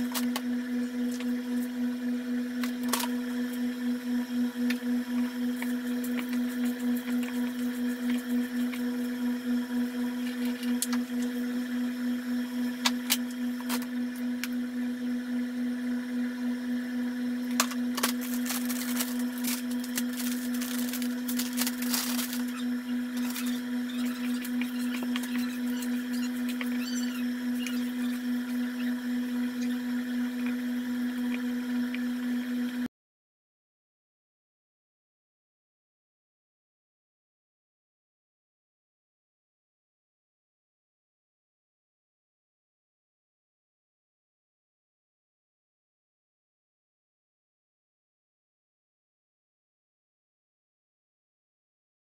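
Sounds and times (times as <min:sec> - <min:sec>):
electrical hum: 0:00.0 - 0:32.9
hands mixing meat in bowl: 0:17.5 - 0:31.4.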